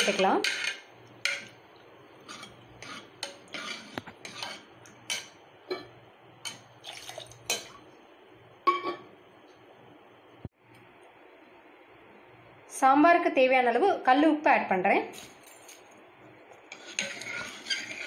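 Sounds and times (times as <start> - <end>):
ladle clinking and scraping pot: 0.0 - 1.6, 2.2 - 7.8, 16.7 - 18.0
ladle stirring in metal pot: 0.0 - 7.8, 16.6 - 18.0.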